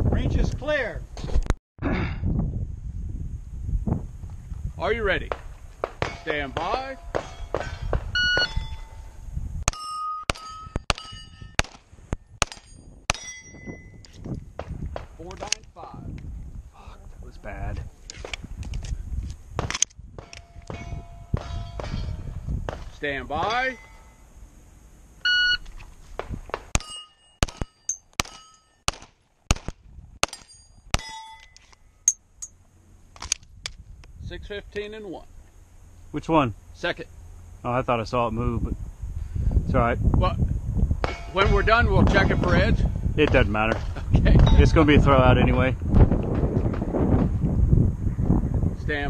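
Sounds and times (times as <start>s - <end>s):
steel plates ringing clang: 6.0s - 11.6s, 12.5s - 14.0s, 23.4s - 24.2s, 26.8s - 28.9s, 30.2s - 32.6s, 41.1s - 41.6s
shot timer beep: 8.2s - 8.6s
pistol shots: 26.7s - 31.2s.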